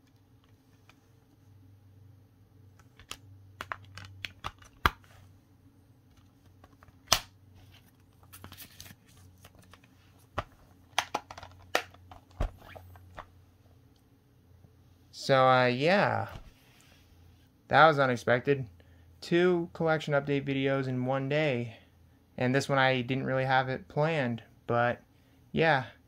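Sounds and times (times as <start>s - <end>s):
paper rustle: 7.6s - 10.1s
plastic case clicks and snaps: 10.9s - 12.5s.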